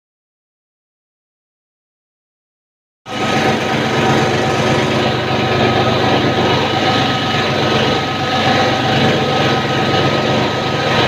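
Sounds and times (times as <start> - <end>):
extrusion machine humming: 3.1 - 11.0
motors whining: 3.1 - 11.0.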